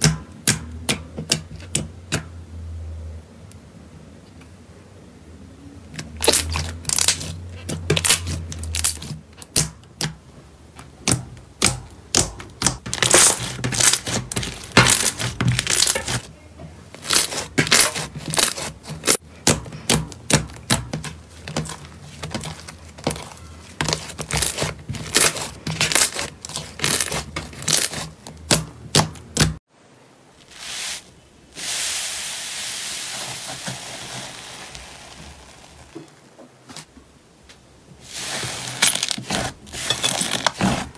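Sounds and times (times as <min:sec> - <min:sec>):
slime popping and crackling: 0:06.2 - 0:10.1, 0:11.0 - 0:16.3, 0:17.0 - 0:29.6
foamy slime fizzing crackle: 0:30.4 - 0:36.2.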